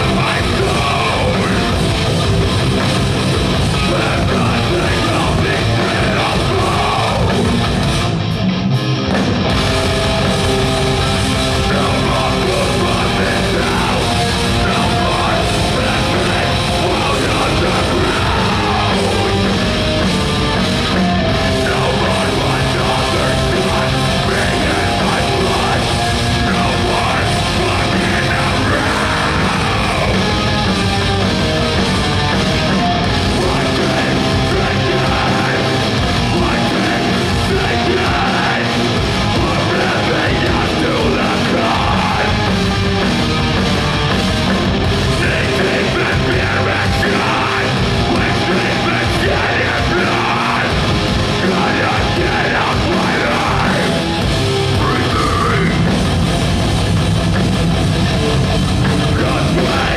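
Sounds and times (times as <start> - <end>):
heavy metal band playing: 0.0 - 59.9
shouted vocals: 3.7 - 7.6, 11.6 - 19.8, 21.1 - 30.7, 32.7 - 42.6, 45.1 - 54.1, 54.7 - 56.0, 59.0 - 59.9.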